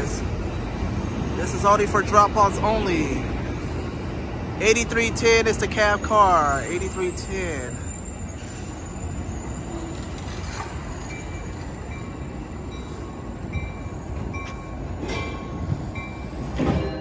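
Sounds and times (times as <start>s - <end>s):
train wheels rumbling on rails: 0.0s - 17.0s
faint wheel squealing: 5.9s - 12.3s.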